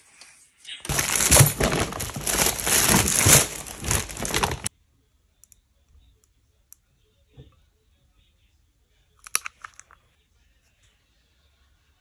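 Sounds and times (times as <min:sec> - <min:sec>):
plastic bag rustling: 0:00.9 - 0:04.7.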